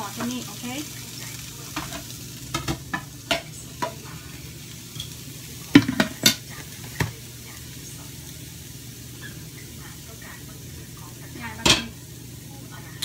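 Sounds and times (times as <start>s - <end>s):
food sizzling: 0.0s - 13.0s
pan knocking on burner: 1.7s - 4.1s, 5.7s - 7.2s, 11.5s - 12.0s.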